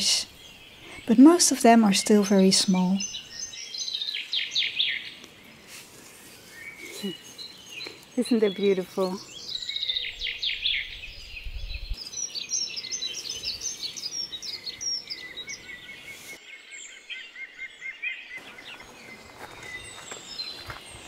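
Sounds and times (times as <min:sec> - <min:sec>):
songbirds chirping: 0:00.0 - 0:21.0.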